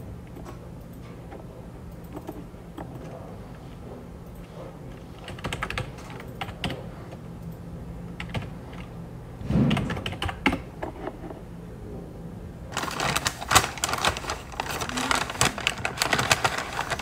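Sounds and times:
steady low hum: 0.0s - 17.0s
low thump: 9.4s - 10.0s.

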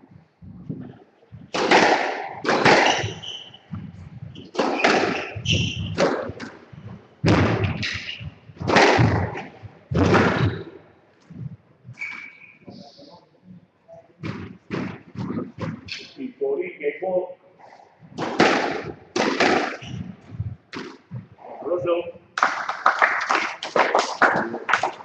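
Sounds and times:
squash ball hitting rackets and walls: 1.4s - 10.7s, 11.9s - 12.6s, 14.2s - 16.1s, 18.1s - 21.3s.

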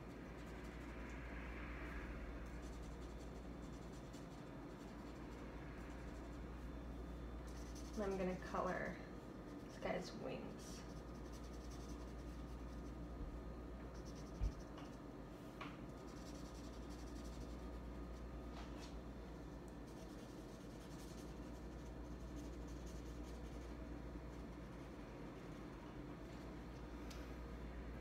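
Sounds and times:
steady low hum: 0.0s - 28.0s
marker scratching on paper: 7.4s - 8.8s, 10.8s - 13.0s, 13.9s - 15.0s, 15.9s - 17.8s, 19.9s - 25.0s.

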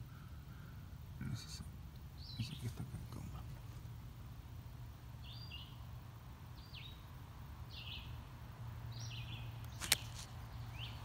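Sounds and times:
low steady hum: 0.0s - 11.0s
small bird chirping: 1.3s - 3.0s, 5.2s - 5.9s, 6.5s - 8.3s, 8.9s - 11.0s.

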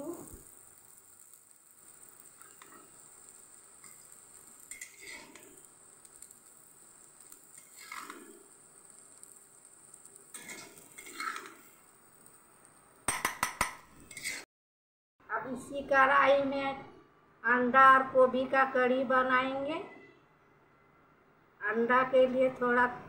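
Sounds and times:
faint steady hiss: 0.0s - 14.4s
steel ladle scraping metal pan: 2.4s - 6.3s, 7.1s - 9.2s, 10.2s - 11.8s, 14.0s - 14.5s.

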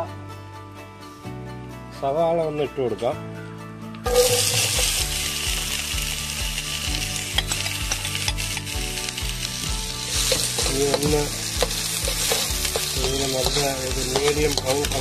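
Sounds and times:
onions sizzling in a pan: 4.0s - 15.0s
spatula stirring: 4.1s - 5.1s, 7.2s - 15.0s.

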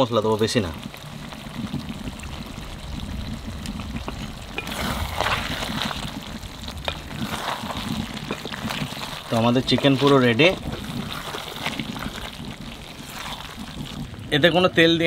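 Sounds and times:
curry sizzling in a pot: 0.0s - 15.0s
steady low rumble: 0.6s - 15.0s
metal spatula stirring and scraping: 4.0s - 14.1s.

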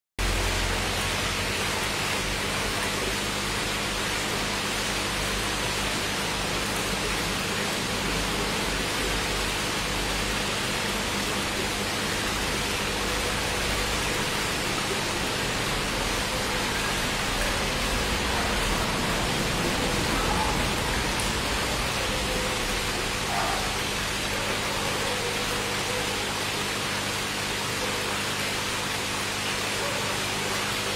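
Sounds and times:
aquarium water rushing: 0.2s - 30.9s.

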